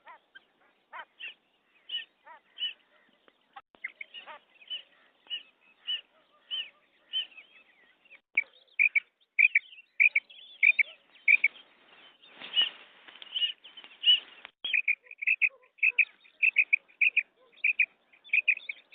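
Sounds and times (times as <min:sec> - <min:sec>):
quail calling: 0:00.0 - 0:03.1, 0:03.8 - 0:07.4, 0:08.4 - 0:11.6, 0:13.3 - 0:18.8
rustling: 0:11.3 - 0:14.6.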